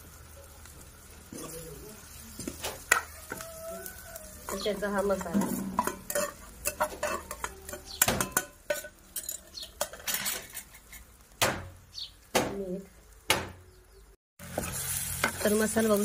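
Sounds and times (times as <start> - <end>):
spoon clinking on metal bowls: 4.4 - 11.0.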